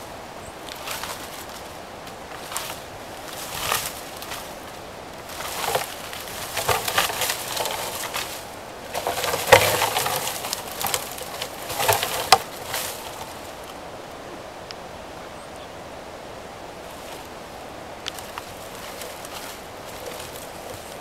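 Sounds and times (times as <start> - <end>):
moose antlers clacking: 5.2 - 13.8.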